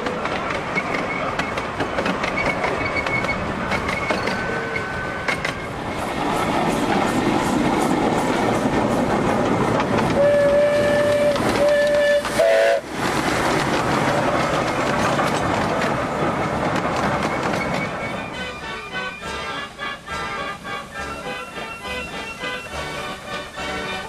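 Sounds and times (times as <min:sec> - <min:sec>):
miniature steam train wheels clattering: 0:00.0 - 0:24.0
steam whistle blowing: 0:10.2 - 0:12.8.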